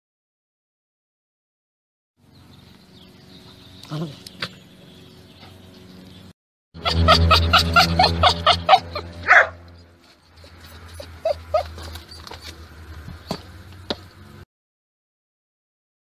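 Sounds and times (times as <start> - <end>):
small dog yapping: 3.8 - 4.2, 6.8 - 9.7, 10.4 - 12.5.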